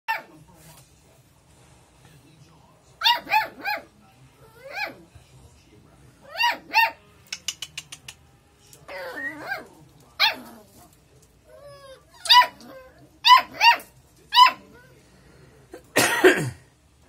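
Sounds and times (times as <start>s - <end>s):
puppy whining: 4.4s - 5.1s, 8.9s - 15.0s
puppies yapping: 10.2s - 10.6s, 11.5s - 14.6s.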